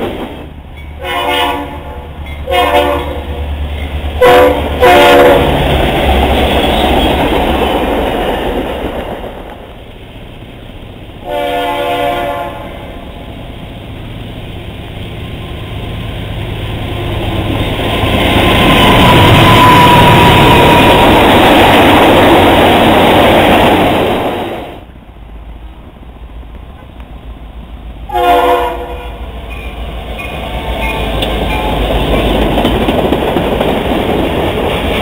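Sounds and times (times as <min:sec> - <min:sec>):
freight train passing at speed: 0:00.0 - 0:35.0
train air horn blast: 0:01.0 - 0:03.4, 0:04.2 - 0:05.6, 0:11.2 - 0:12.8, 0:28.1 - 0:29.3.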